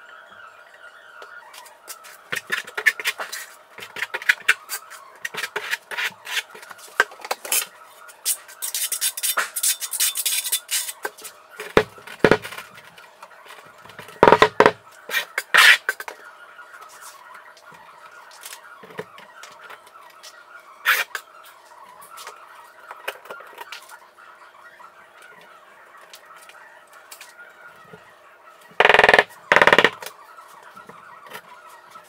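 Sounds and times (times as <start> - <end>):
tile knocking and thumping: 14.2 - 14.8.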